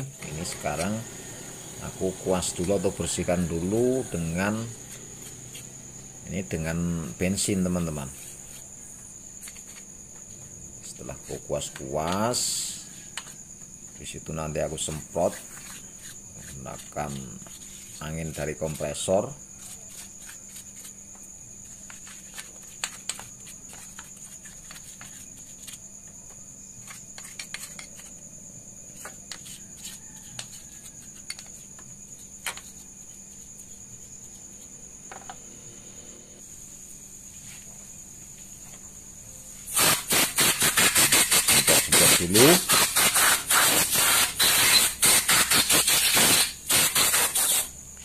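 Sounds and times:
compressed air hissing: 0:39.7 - 0:47.8.

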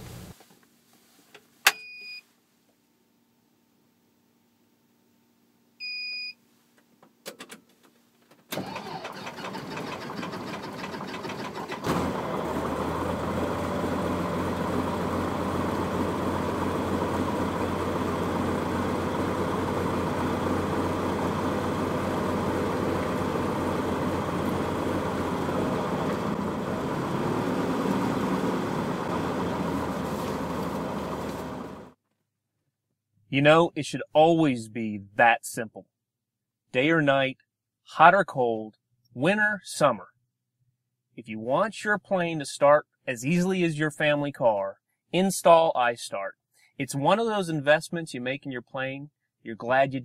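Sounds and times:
short beep: 0:01.7 - 0:02.2, 0:05.8 - 0:06.4
aircraft engine starter cranking: 0:08.5 - 0:12.3
aircraft engine running: 0:08.6 - 0:32.0.

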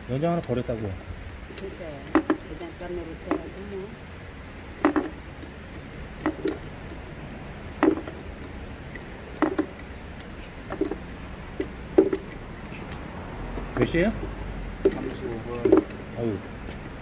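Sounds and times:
tools knocking on workbench: 0:04.8 - 0:05.2, 0:07.8 - 0:08.2, 0:09.4 - 0:09.7, 0:12.0 - 0:12.3.

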